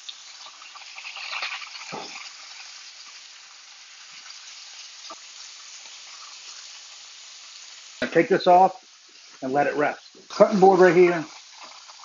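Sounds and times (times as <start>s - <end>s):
meat sizzling in butter: 0.0s - 12.0s.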